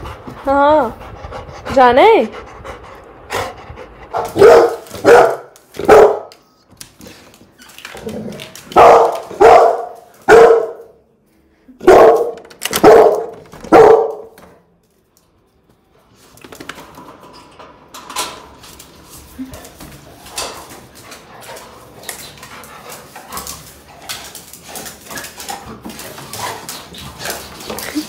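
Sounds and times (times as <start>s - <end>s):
dog barking: 4.2s - 6.3s, 8.8s - 11.0s, 11.8s - 14.4s.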